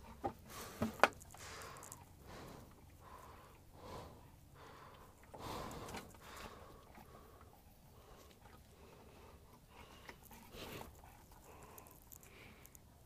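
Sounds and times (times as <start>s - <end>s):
puppy breathing and snuffling: 5.0s - 13.0s.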